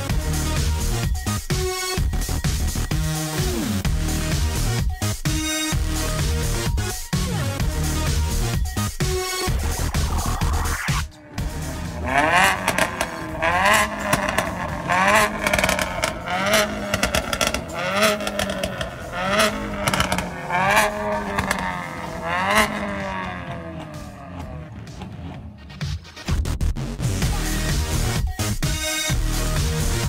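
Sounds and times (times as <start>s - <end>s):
car engine revving: 7.6s - 26.1s
exhaust crackling pops: 12.0s - 25.5s.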